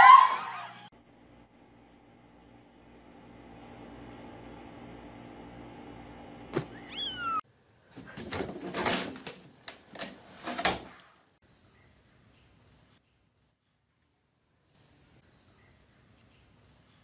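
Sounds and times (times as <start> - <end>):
kitten meowing: 6.7 - 7.4.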